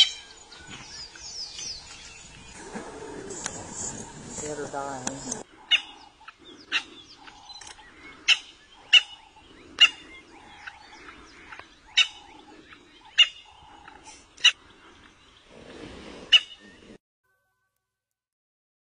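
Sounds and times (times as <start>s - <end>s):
lower repeating animal call: 5.2s - 17.0s.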